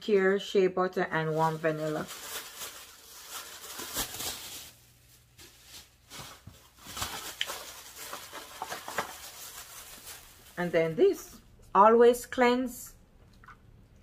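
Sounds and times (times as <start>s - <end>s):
plastic bottles rustling: 1.4s - 11.2s.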